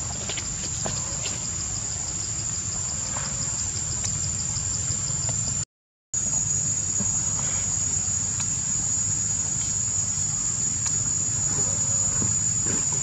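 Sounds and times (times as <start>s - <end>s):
insects droning: 0.0s - 5.6s, 6.2s - 13.0s
constant low rumble: 6.2s - 13.0s.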